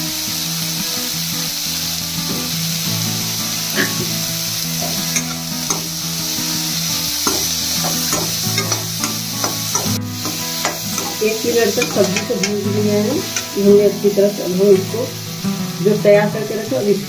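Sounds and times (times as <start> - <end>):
vegetables sizzling in hot oil: 0.0 - 17.0
spatula scraping pan: 4.8 - 13.6.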